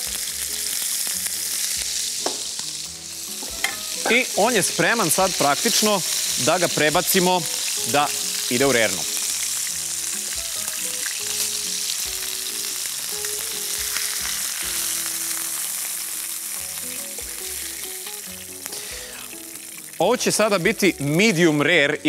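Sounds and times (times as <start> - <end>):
steaks sizzling in frying pan: 0.0 - 22.0.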